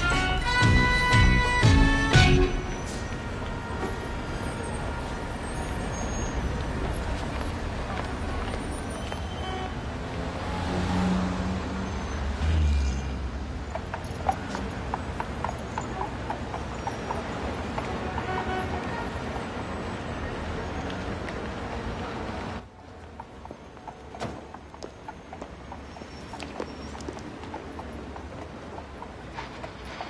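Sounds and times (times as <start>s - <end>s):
cars and buses passing: 0.0s - 30.0s
horse hooves on pavement: 6.4s - 10.3s, 13.4s - 18.9s, 22.6s - 30.0s.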